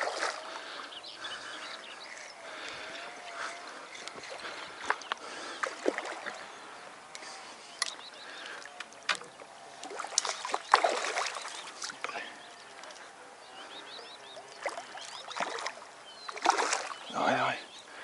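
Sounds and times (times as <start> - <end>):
fish splashing in water: 0.0 - 1.6, 3.3 - 6.6, 7.8 - 13.1, 14.3 - 17.1.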